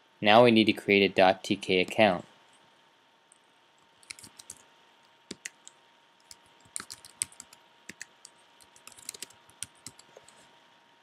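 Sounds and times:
typing on keyboard: 4.0s - 4.6s, 5.3s - 10.4s.

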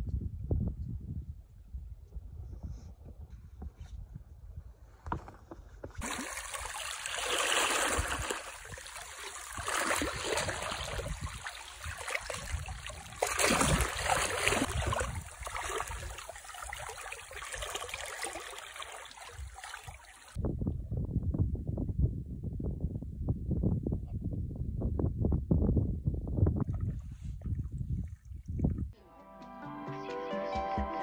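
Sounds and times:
wind on microphone: 0.0s - 5.2s, 7.6s - 17.7s, 20.3s - 29.0s
water washing over rocks: 6.0s - 20.4s.

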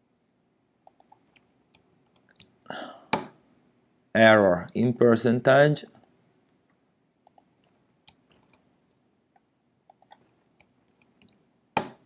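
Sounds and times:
computer keyboard and mouse clicks: 0.8s - 2.5s, 7.2s - 8.6s, 9.9s - 12.0s.

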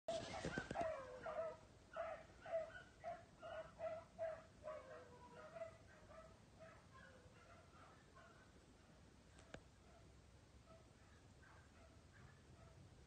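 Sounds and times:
hound barking high yips: 0.1s - 8.4s.

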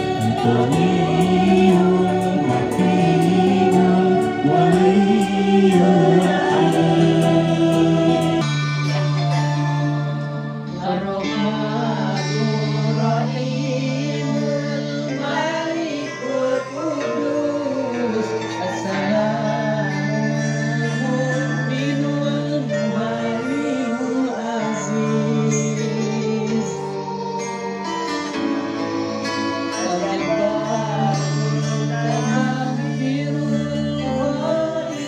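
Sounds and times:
held low notes: 0.0s - 8.6s
guitar: 0.0s - 35.0s
person singing slow melody: 0.0s - 35.0s.

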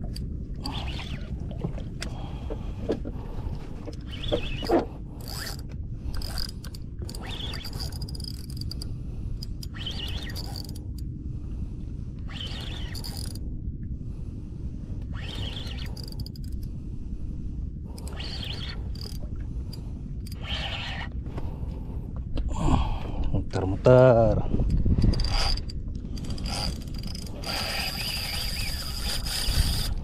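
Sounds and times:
low rumble: 0.0s - 27.8s
fishing reel gears whirring and clicking: 3.9s - 11.0s, 12.2s - 13.4s, 15.0s - 16.7s, 17.9s - 21.1s, 24.7s - 30.0s.

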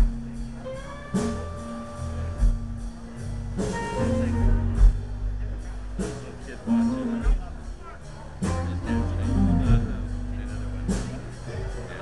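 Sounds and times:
bass guitar line: 0.0s - 12.0s
drum hits: 2.2s - 5.3s.

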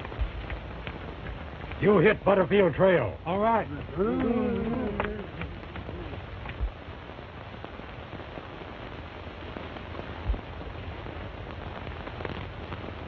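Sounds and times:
film soundtrack hiss and crackle: 0.0s - 13.0s.

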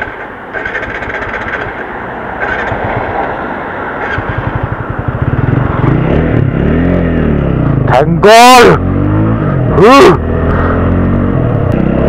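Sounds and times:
motorcycle engine running unevenly: 0.0s - 3.2s, 4.0s - 8.6s
wind and road noise: 0.0s - 12.0s.

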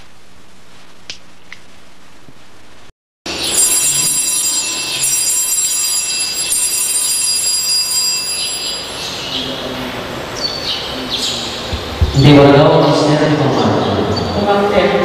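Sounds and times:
altar bells ringing: 3.3s - 10.9s.

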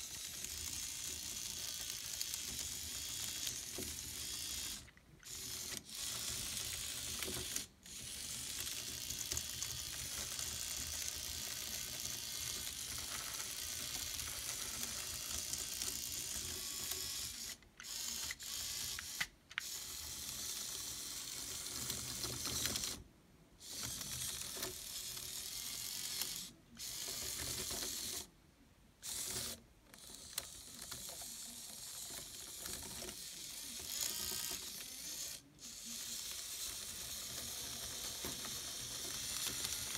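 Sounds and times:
small electric gear motors: 0.0s - 23.0s, 23.6s - 28.3s, 29.0s - 39.9s
plastic tracks rattling: 29.1s - 39.9s.

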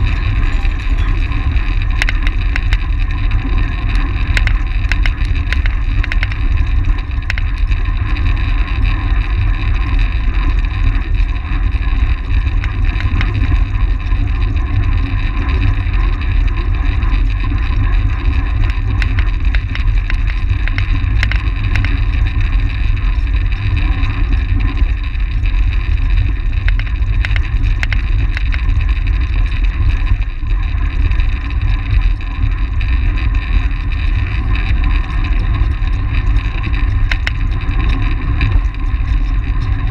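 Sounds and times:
small clicks: 0.0s - 7.6s, 12.6s - 13.6s, 17.7s - 22.4s, 26.2s - 28.9s, 34.2s - 39.9s
bike tyres and drivetrain humming: 0.0s - 39.9s
wind rushing over microphone: 0.0s - 39.9s.

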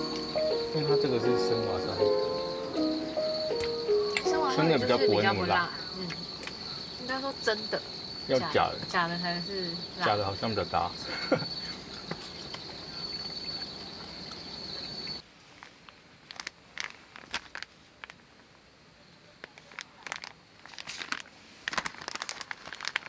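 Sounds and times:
crickets chirring: 0.0s - 23.0s
plastic packaging crinkling: 15.6s - 18.2s, 19.5s - 23.0s.

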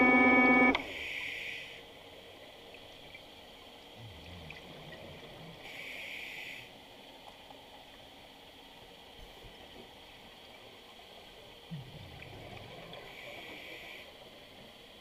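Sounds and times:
regulator breathing hiss: 0.8s - 1.9s, 5.6s - 6.8s, 13.0s - 14.6s
underwater bubbling: 2.5s - 5.9s, 9.5s - 14.5s.

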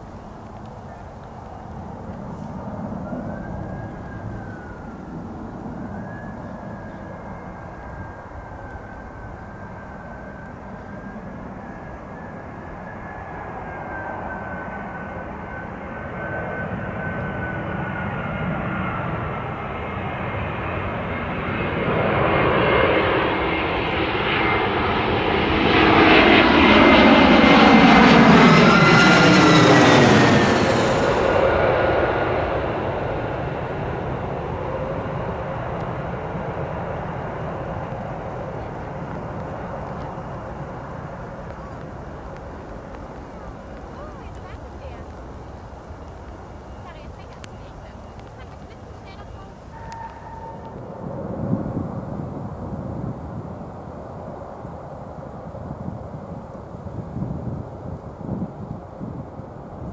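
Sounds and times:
jet airliner passing overhead: 0.0s - 59.9s
jet engine high whine: 0.0s - 59.9s.

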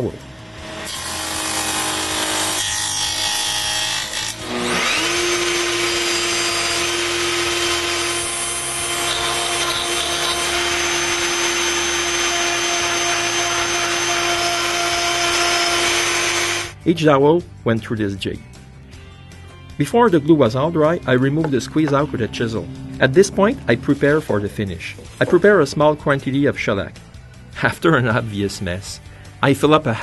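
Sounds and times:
electric router motor: 0.2s - 16.7s
router bit cutting wood: 0.6s - 16.7s, 20.3s - 25.9s.

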